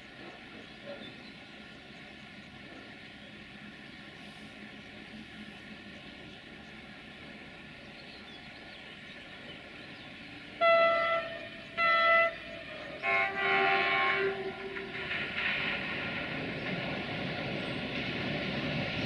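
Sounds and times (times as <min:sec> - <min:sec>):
train wagons rumbling: 0:00.0 - 0:19.0
locomotive horn blasts: 0:10.6 - 0:15.0.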